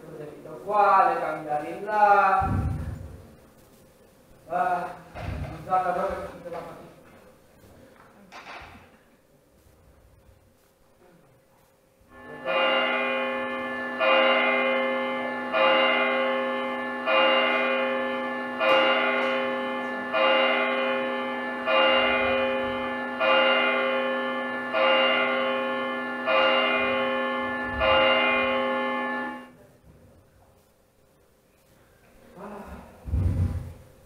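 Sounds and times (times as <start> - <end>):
church bell tolling: 12.1 - 29.6.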